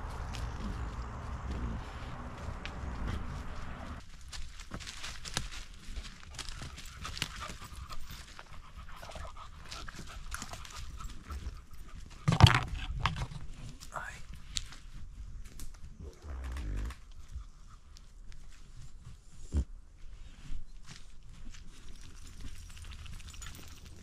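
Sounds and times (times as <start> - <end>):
footsteps crackling on leaf litter: 0.0 - 7.2
dog panting: 6.3 - 12.1.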